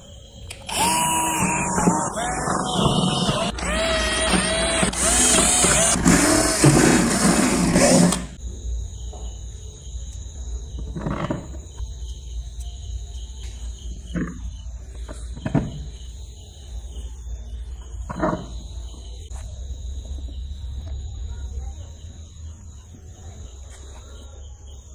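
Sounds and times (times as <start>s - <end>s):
cordless drill whining: 0.5s - 8.4s.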